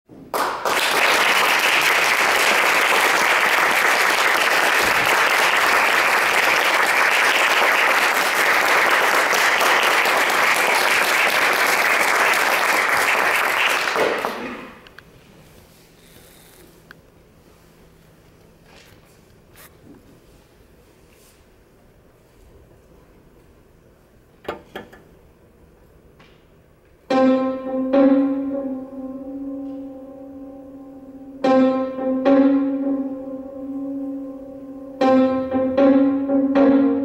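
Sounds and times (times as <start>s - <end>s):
audience applauding: 0.3s - 14.8s.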